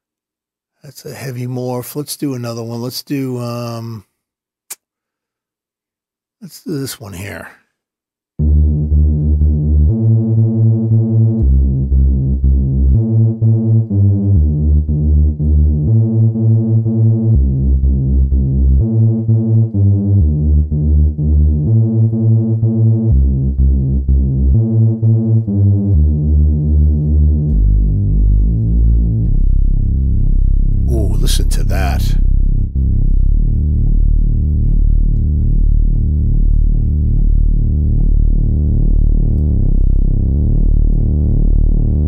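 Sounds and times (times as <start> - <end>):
deep synth bass notes: 8.4 - 42.0.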